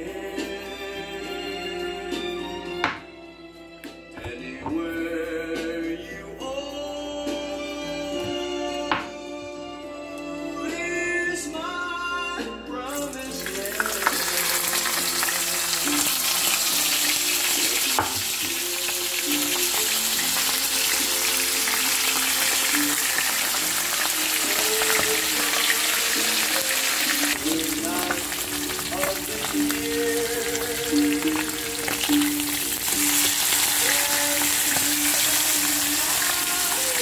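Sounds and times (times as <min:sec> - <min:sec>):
soft background music: 0:00.0 - 0:37.0
fish sizzling in hot oil: 0:13.0 - 0:37.0.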